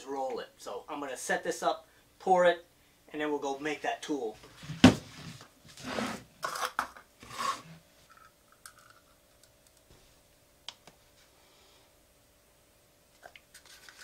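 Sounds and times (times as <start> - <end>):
plastic bottles scraping and rattling: 4.6 - 7.8.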